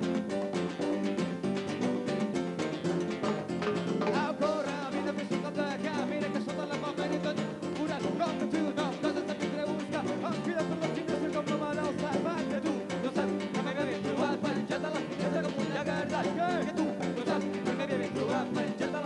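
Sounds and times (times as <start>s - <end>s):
conga drums: 0.0s - 19.0s
guitar: 0.0s - 19.0s
person singing: 3.8s - 19.0s.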